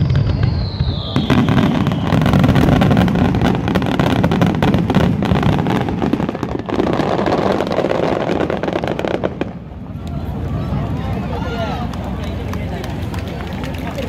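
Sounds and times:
fireworks bangs and crackles: 0.0 - 14.0.

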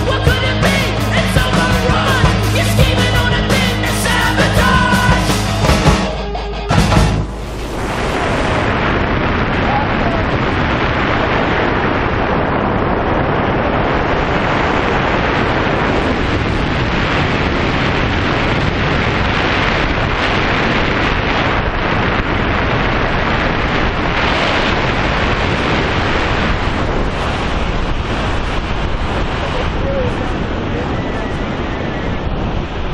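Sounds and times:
wind rushing over microphone: 7.0 - 32.9.

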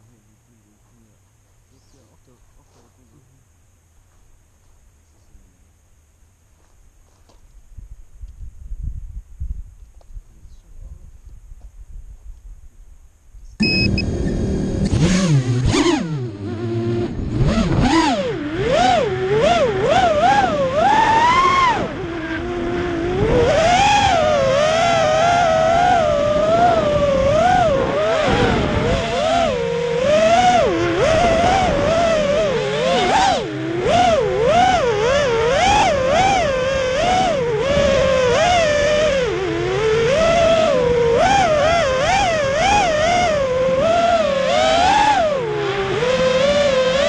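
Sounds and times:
faint wind: 0.0 - 47.0
drone motors whining: 13.6 - 47.0.

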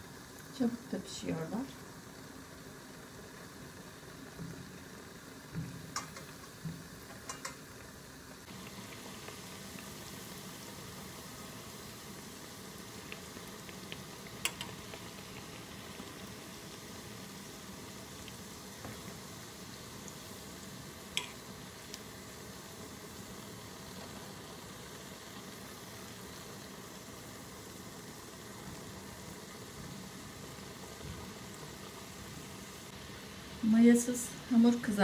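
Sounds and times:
oil bubbling and sizzling: 0.0 - 35.0
metal tongs clicking: 7.3 - 7.6.

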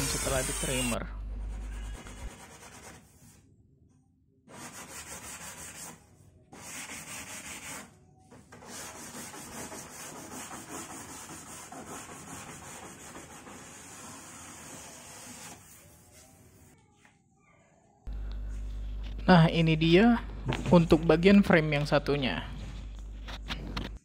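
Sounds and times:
hand sanding rubbing strokes: 1.6 - 3.3, 4.5 - 6.0, 6.6 - 7.9, 8.6 - 16.3.

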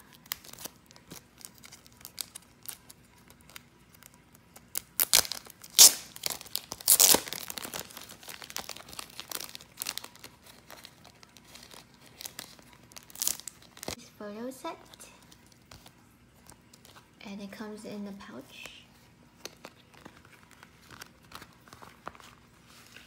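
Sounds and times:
plastic packaging crinkling: 0.0 - 14.0, 18.5 - 23.0
plastic ripping: 0.0 - 14.0, 19.4 - 23.0.

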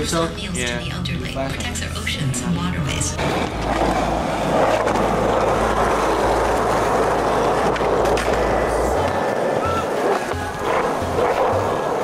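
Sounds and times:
skateboard wheels rolling on asphalt: 3.2 - 12.0.

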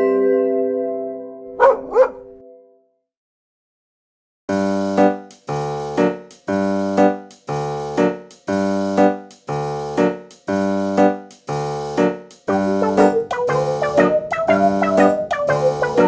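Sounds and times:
piano chords: 12.0 - 16.0.

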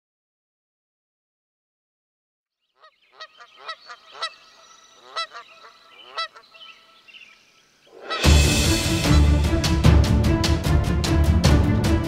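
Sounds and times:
geese honking: 2.8 - 9.6.

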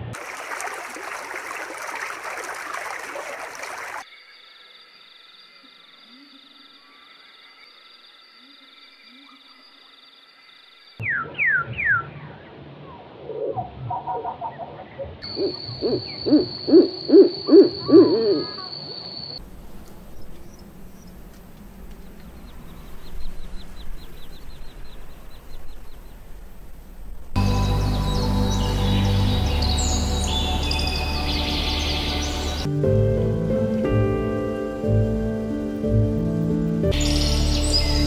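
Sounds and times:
owl hooting: 11.0 - 19.2.

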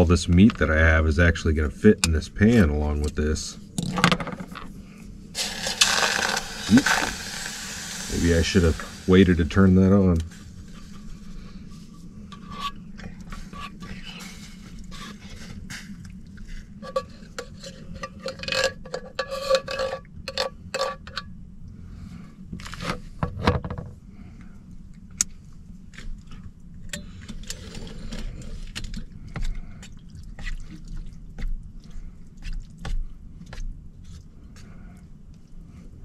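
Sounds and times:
utensil scraping metal pan: 5.4 - 9.5, 12.3 - 15.6, 16.7 - 21.2.

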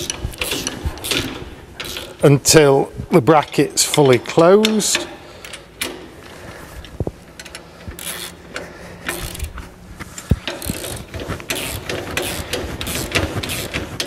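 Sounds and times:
socket ratchet clicking: 7.4 - 9.6, 10.4 - 14.0.

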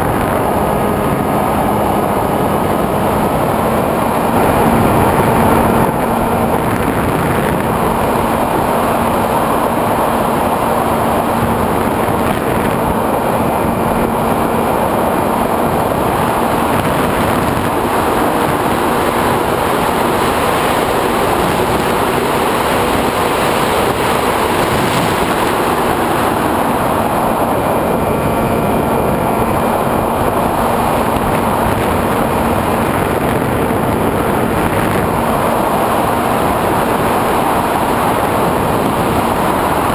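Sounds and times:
electric motor and propeller hum: 0.0 - 39.9
wind rush: 0.0 - 39.9.

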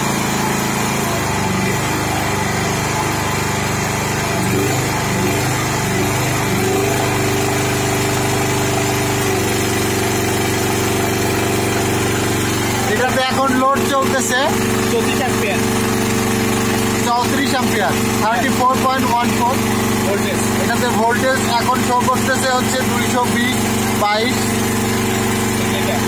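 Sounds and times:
portable generator engine running: 0.0 - 26.0.

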